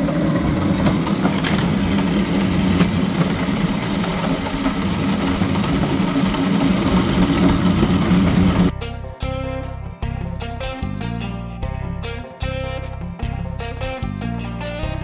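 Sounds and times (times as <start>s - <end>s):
mechanical clatter on rails: 0.0s - 8.7s
railcart engine drone: 0.0s - 8.7s.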